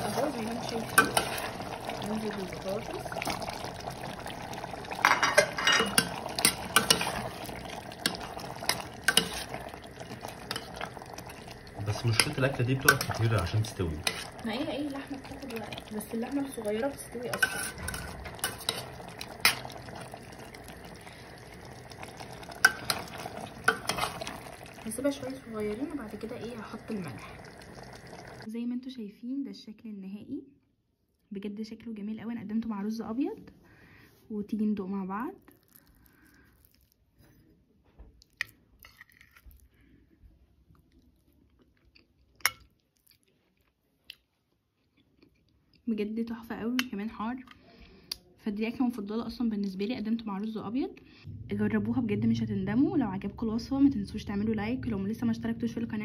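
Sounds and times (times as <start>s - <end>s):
stew sloshing: 0.0s - 28.5s
spoon clinking against pot: 5.0s - 7.3s, 17.3s - 19.8s
quiet chewing: 35.4s - 37.5s, 38.1s - 45.9s.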